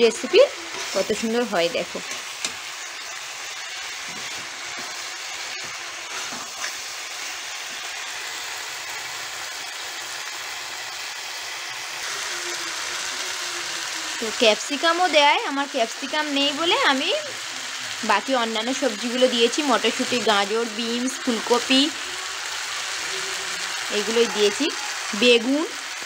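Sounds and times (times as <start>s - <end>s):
vegetables sizzling in hot oil: 0.0s - 26.0s
spatula stirring: 3.9s - 7.4s.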